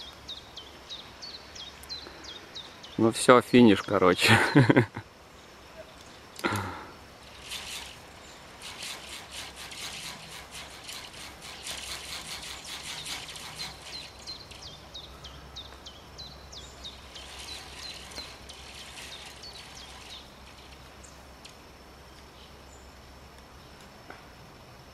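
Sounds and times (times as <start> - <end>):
small bird chirping: 0.0 - 3.0, 7.2 - 22.9
sharp clicks: 7.4 - 14.7.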